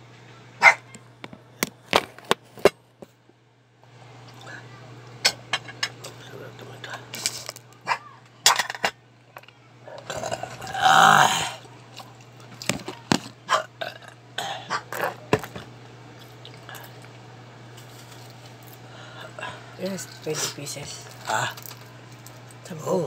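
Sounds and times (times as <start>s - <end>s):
low steady hum: 0.0s - 23.0s
loud burp: 10.0s - 11.6s, 13.5s - 15.2s.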